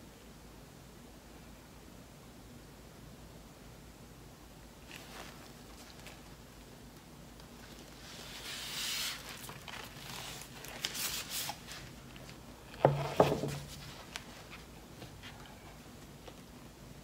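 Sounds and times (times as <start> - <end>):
canvas rustling: 4.8 - 12.6, 13.4 - 16.6
canvas knocking on table: 12.8 - 13.8.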